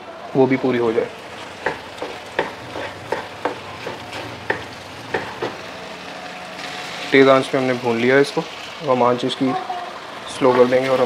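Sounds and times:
vegetables sizzling: 0.0s - 11.0s
wooden spoon scraping wok: 1.3s - 5.6s.

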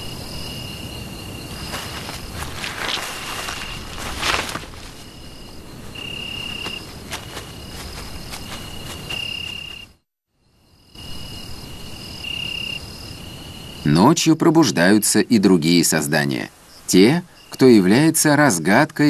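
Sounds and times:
night insects trilling: 0.0s - 19.0s
leaves rustling: 0.1s - 9.9s.

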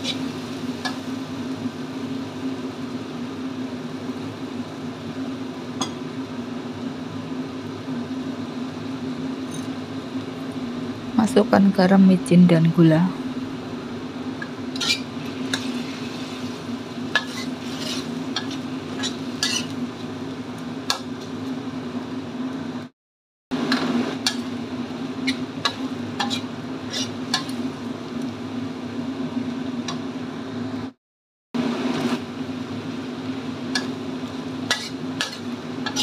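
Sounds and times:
sauce sizzling: 0.0s - 11.2s, 13.2s - 22.2s, 23.6s - 29.9s, 31.7s - 36.0s
metal spatula scraping a wok: 14.7s - 19.8s, 25.2s - 27.6s, 34.7s - 36.0s.

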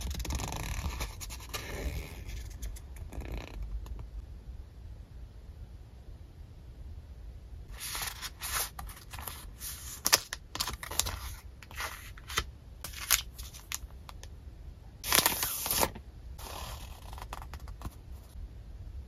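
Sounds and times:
paper sheets rustling: 7.7s - 13.8s, 15.0s - 16.0s.

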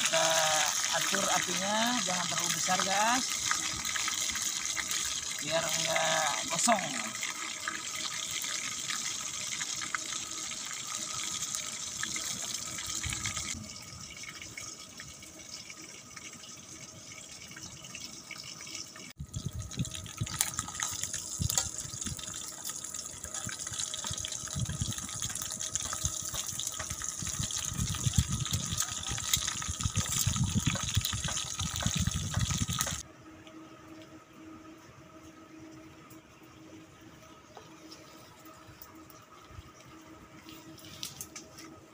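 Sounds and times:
oil sizzling and crackling: 0.0s - 33.1s.

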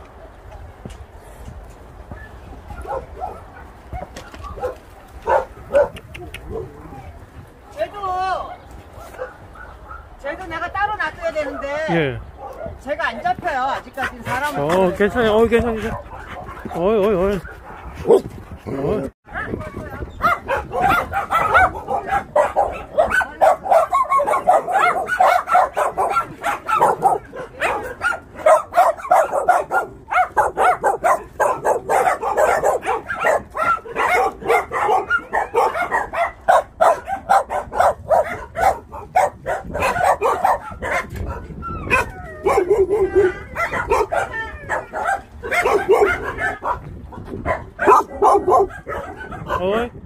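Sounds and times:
many dogs barking: 2.7s - 10.2s, 11.1s - 12.9s, 13.6s - 50.0s
low drawn-out dog cry: 15.7s - 49.8s.

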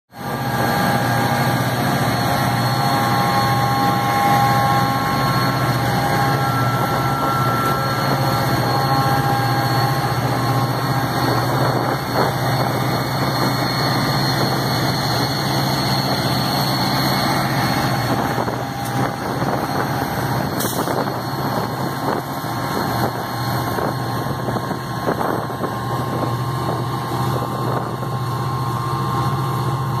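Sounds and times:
diesel locomotives droning: 0.1s - 30.0s.

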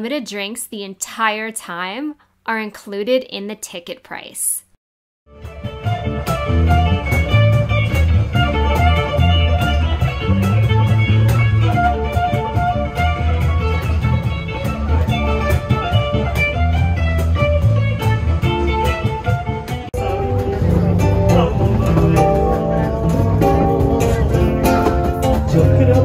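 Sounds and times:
live band instrumental: 5.3s - 26.0s
plucked guitar melody: 5.3s - 26.0s
walking bass line: 5.3s - 26.0s.

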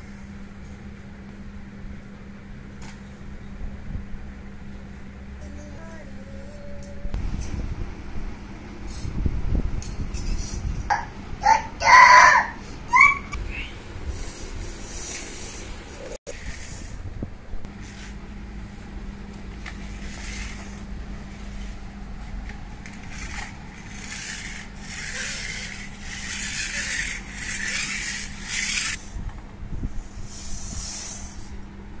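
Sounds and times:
steady low hum: 0.0s - 32.0s
toy car scraping on concrete: 19.8s - 20.8s, 22.8s - 29.0s.

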